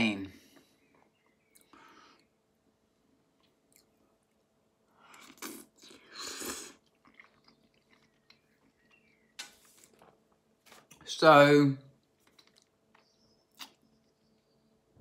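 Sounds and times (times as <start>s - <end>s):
soft chewing clicks: 3.3s - 4.4s, 6.8s - 9.3s, 12.0s - 14.5s
person slurping noodles: 5.2s - 6.9s.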